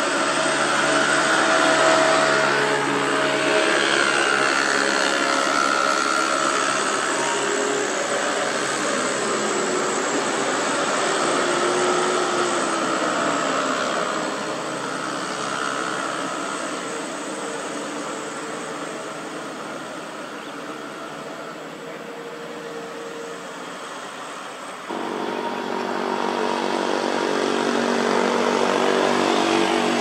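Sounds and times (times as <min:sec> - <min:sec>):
truck diesel engine droning: 0:00.0 - 0:30.0.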